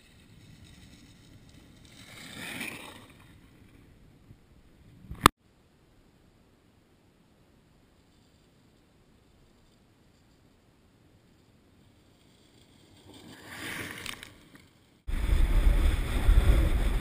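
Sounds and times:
sled swishing over snow: 0.0s - 3.7s, 11.7s - 17.0s
faint hiss: 4.0s - 17.0s.

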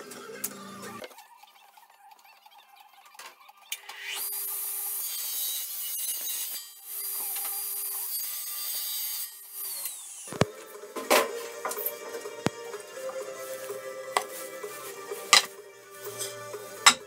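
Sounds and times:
table saw cutting wood: 3.7s - 17.0s.

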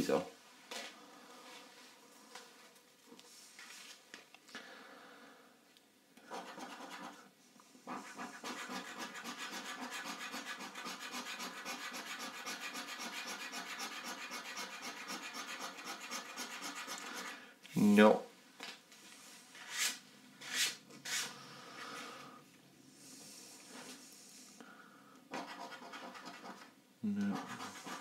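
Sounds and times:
scratching a scratchcard: 6.3s - 7.2s, 7.9s - 17.3s, 25.3s - 26.7s, 27.3s - 28.0s.

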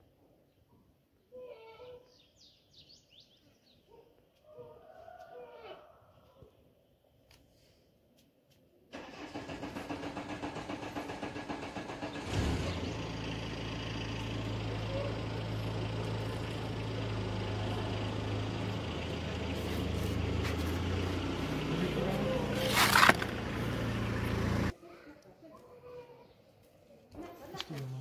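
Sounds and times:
starter cranking: 9.0s - 12.8s, 21.0s - 24.6s
engine idling: 9.0s - 24.7s.

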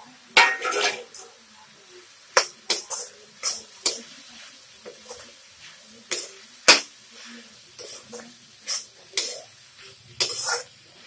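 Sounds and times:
spatula scraping a steel pan: 4.8s - 9.5s, 10.2s - 10.8s.

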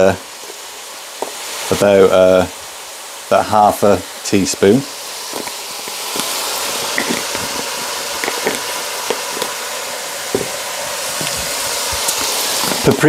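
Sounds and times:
meat sizzling in a frying pan: 0.0s - 13.0s
small crackles: 5.2s - 9.6s, 10.3s - 13.0s.

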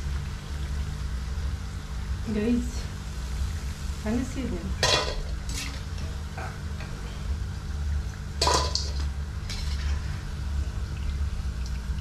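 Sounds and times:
steady low hum: 0.0s - 12.0s
metal spoon scraping a wok: 8.4s - 10.2s.

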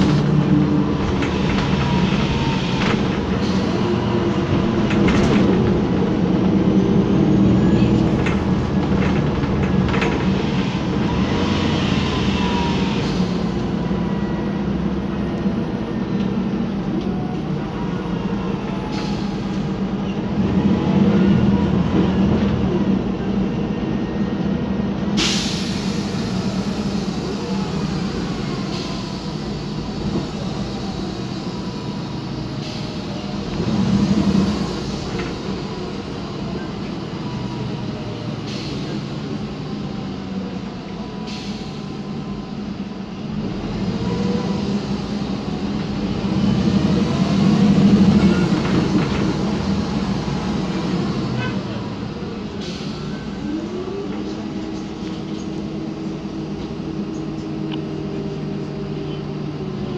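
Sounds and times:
bus engine droning: 0.0s - 59.9s.

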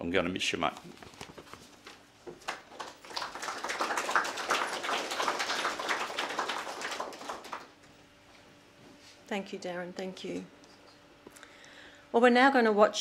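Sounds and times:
audience clapping: 2.3s - 7.8s.

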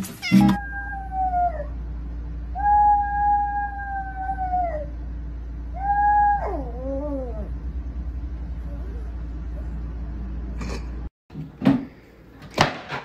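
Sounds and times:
small dog howling: 0.6s - 1.8s, 2.5s - 5.0s, 5.7s - 7.5s.

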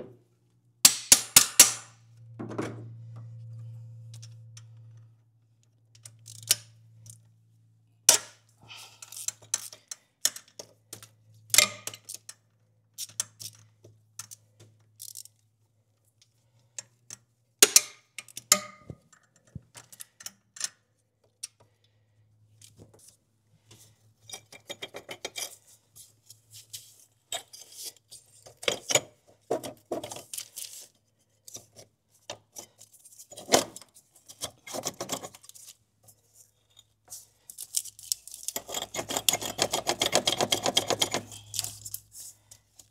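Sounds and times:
faint low hum: 1.9s - 9.0s.

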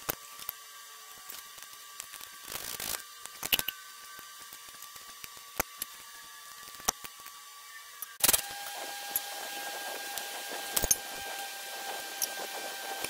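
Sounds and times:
hand tools clicking on metal: 10.1s - 11.5s.

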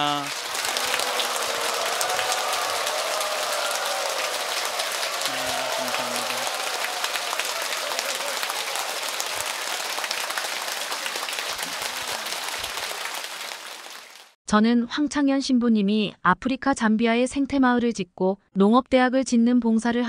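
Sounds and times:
audience applauding: 0.0s - 14.4s.

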